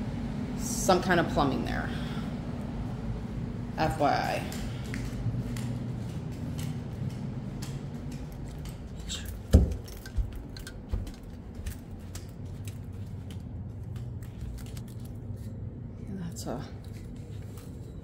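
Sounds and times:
low steady hum: 0:00.0 - 0:18.0
footsteps on concrete floor: 0:04.4 - 0:15.6.

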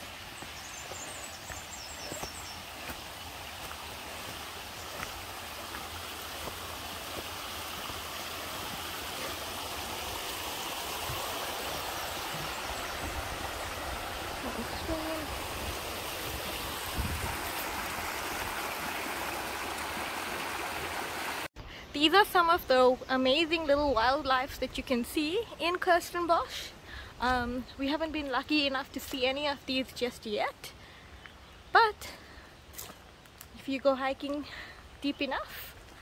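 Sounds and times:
stream splashing over rocks: 0:00.0 - 0:21.5.

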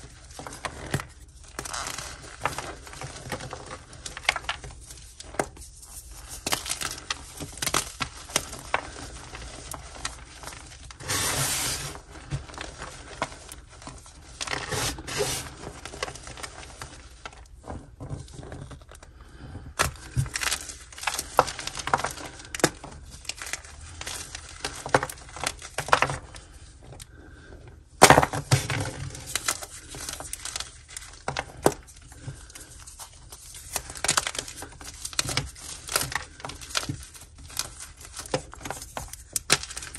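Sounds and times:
chalk blocks crunching by hand: 0:00.4 - 0:13.7, 0:14.4 - 0:17.2.

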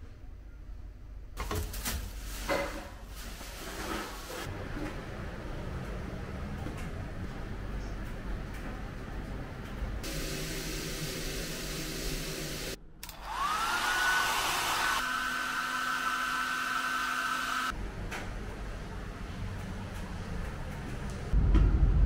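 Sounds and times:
hair dryer running: 0:11.1 - 0:17.8.

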